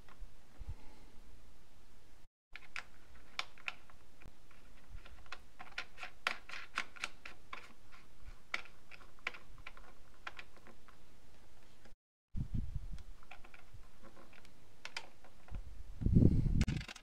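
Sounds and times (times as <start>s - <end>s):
fingers clicking and tapping caps: 2.6s - 11.0s, 13.0s - 15.6s.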